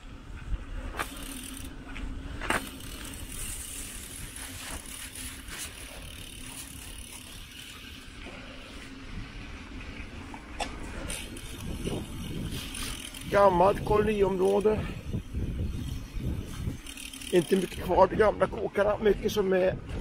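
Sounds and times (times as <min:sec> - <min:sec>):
bike tyres rolling over path: 0:00.0 - 0:20.0
bike knocks and rattles: 0:00.4 - 0:08.4.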